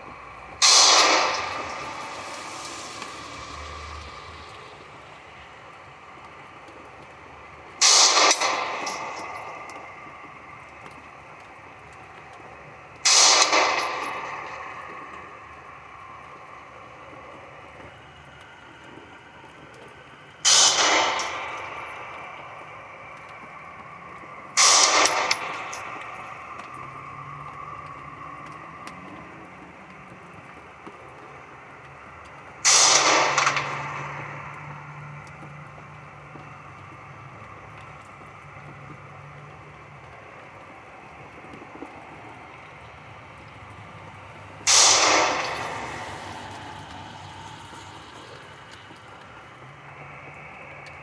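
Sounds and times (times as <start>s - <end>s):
pistol shots with echo: 0.6s - 2.6s, 7.8s - 9.8s, 13.1s - 14.8s, 20.5s - 22.4s, 24.6s - 26.3s, 32.7s - 34.6s, 44.7s - 46.9s.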